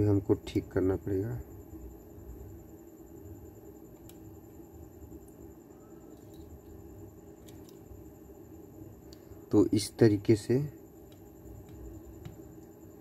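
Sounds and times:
faint steady hum: 0:00.0 - 0:13.0
soldering iron clicks: 0:03.9 - 0:04.3.

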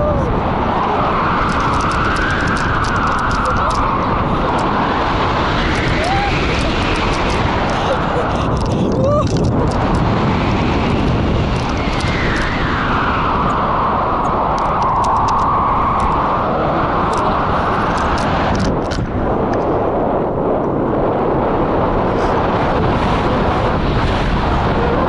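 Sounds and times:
wind rushing over microphone: 0:00.0 - 0:25.0.

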